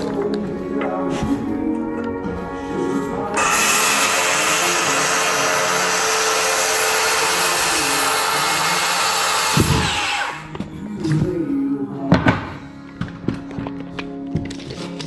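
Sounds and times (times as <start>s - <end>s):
circular saw cutting wood: 3.4s - 10.5s.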